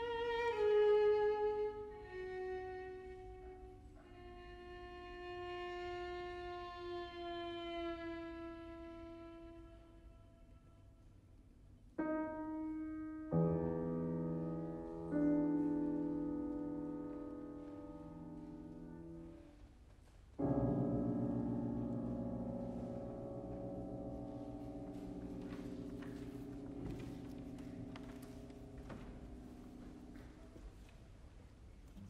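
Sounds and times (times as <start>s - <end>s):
grand piano chords: 11.8s - 19.8s, 20.4s - 32.0s.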